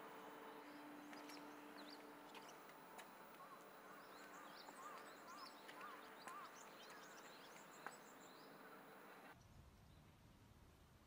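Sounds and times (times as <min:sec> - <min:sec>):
birds chirping: 0:00.0 - 0:09.4.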